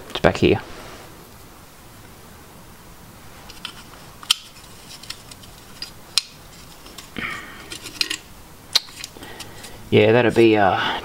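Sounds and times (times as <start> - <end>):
small metal parts clicking: 3.5 - 9.8.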